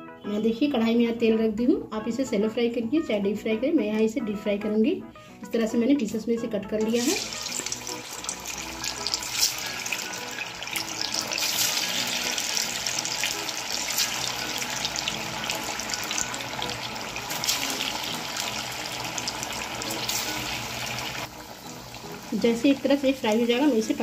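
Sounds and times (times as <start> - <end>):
batter deep-frying in oil: 6.8 - 24.0.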